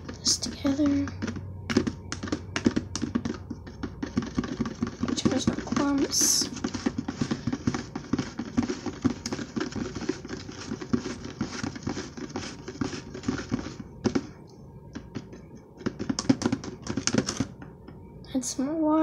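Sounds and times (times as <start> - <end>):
metal spoon stirring slime: 0.0 - 14.4, 15.0 - 17.6
spoon scraping tub sides: 0.0 - 14.4.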